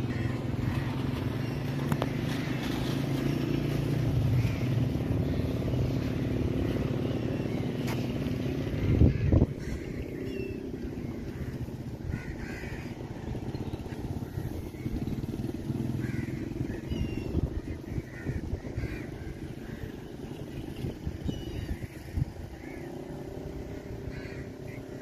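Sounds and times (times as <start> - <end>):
crows cawing: 0.0 - 1.2, 4.3 - 5.1, 8.6 - 13.4, 14.0 - 20.1, 21.8 - 25.0
low outdoor rumble: 0.0 - 25.0.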